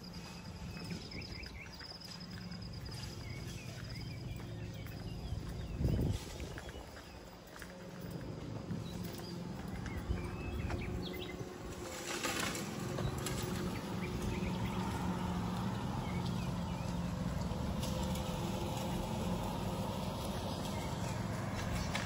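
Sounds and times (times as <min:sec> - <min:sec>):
bird chirps: 0:00.0 - 0:11.5
car driving by: 0:00.0 - 0:22.0.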